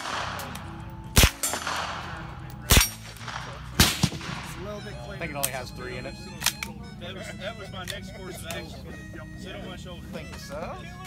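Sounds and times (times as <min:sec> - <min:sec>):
suppressed gunshots: 0:00.0 - 0:04.6.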